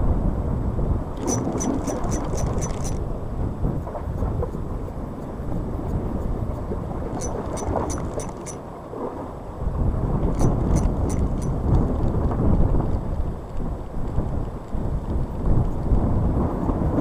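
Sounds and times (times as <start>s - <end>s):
wind rumbling on microphone: 0.0s - 17.0s
fishing reel ticking: 1.2s - 3.0s, 7.1s - 8.6s, 10.3s - 11.6s.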